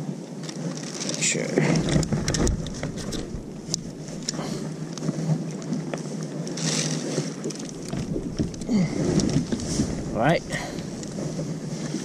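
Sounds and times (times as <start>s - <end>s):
wind on microphone: 1.5s - 5.9s, 7.7s - 12.0s
fishing rod clicks and knocks: 1.8s - 9.6s.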